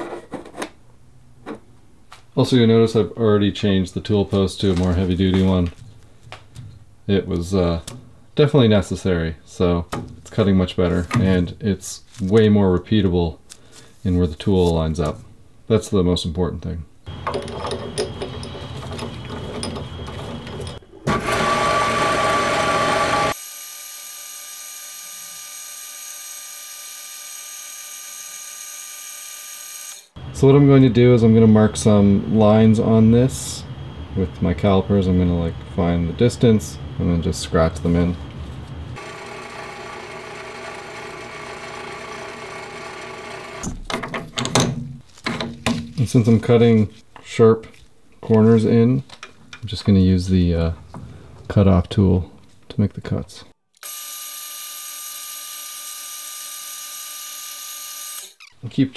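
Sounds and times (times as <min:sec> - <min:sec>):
loud knocks and handling clatter: 0:17.1 - 0:20.8, 0:43.7 - 0:46.1
lathe running with even whine: 0:17.1 - 0:23.4, 0:39.0 - 0:43.6.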